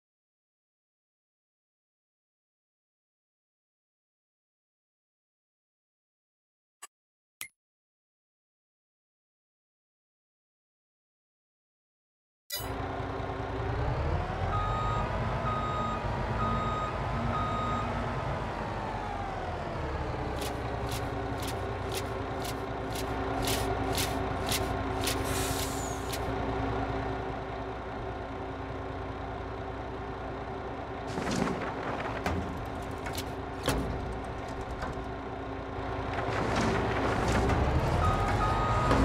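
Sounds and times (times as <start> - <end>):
truck engine revving: 12.8 - 39.0
reversing alarm beeping: 14.5 - 18.0, 38.0 - 39.0.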